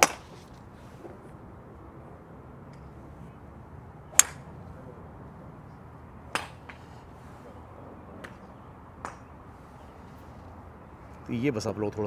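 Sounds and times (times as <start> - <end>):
golf clubs striking balls: 0.0 - 1.3, 4.1 - 4.6, 5.7 - 7.1, 8.2 - 9.3.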